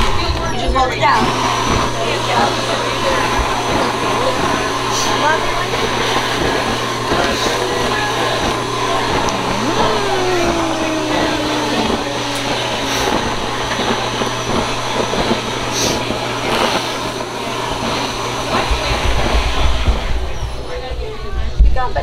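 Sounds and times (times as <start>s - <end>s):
blower humming: 3.1s - 20.4s.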